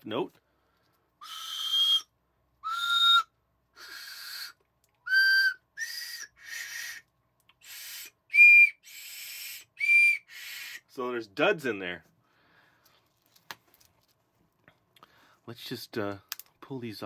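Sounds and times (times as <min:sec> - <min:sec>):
toy train whistle toots: 0:01.2 - 0:07.0, 0:07.6 - 0:10.8
breathy whistle hiss: 0:01.2 - 0:11.0.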